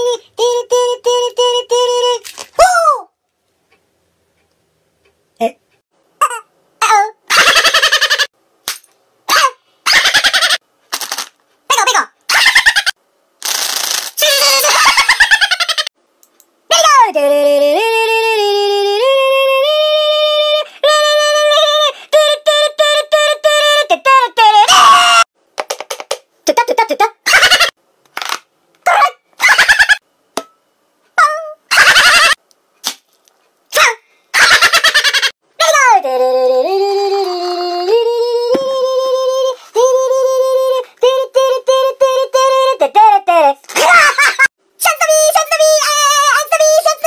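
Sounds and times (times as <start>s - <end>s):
high-pitched voice singing: 0.0s - 3.1s, 14.2s - 15.2s, 16.7s - 25.3s, 26.5s - 27.7s, 31.2s - 32.0s, 35.6s - 44.0s, 44.8s - 47.0s.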